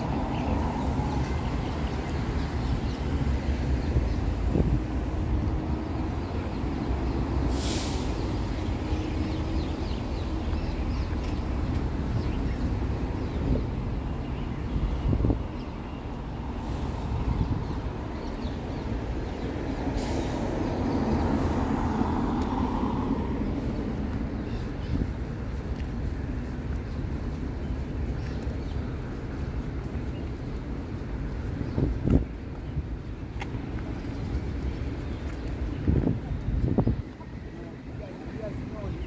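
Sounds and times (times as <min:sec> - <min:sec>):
traffic rumble: 0:00.0 - 0:39.0
short sharp hisses: 0:07.5 - 0:08.2.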